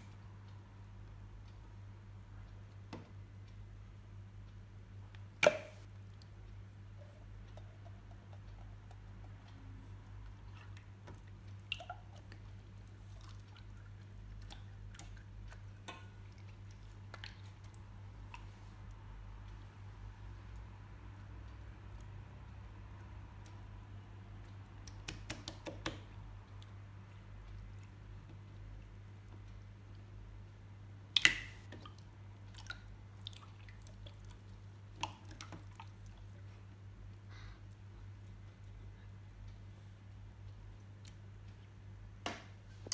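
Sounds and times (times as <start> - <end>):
low steady hum: 0.0 - 42.9
wet slime snap: 5.4 - 5.8, 24.8 - 26.0, 31.1 - 31.7
small wet clicks and pops: 7.3 - 19.6, 24.4 - 30.1, 31.1 - 36.7, 40.4 - 42.9.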